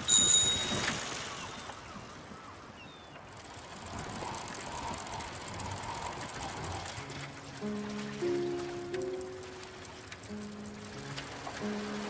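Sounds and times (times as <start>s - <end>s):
chain and wheels ticking: 0.0s - 12.0s.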